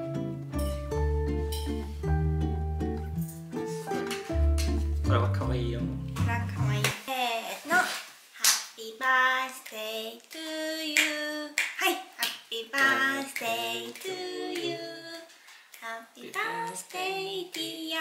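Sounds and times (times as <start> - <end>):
woman singing: 8.4 - 18.0.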